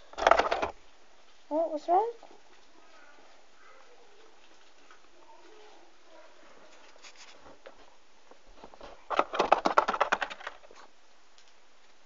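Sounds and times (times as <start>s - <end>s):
sharp taps and scratches: 8.6s - 11.6s.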